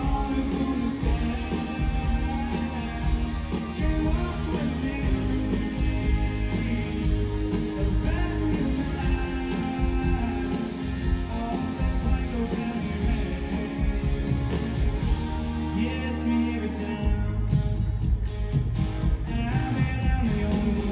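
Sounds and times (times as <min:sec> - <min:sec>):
electric and acoustic guitars: 0:00.0 - 0:20.9
steady drum beat: 0:00.0 - 0:20.9.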